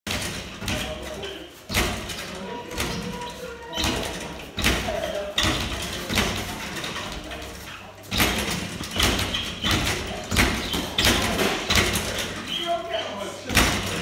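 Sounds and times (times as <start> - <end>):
boxing gloves thudding: 8.1 - 12.4.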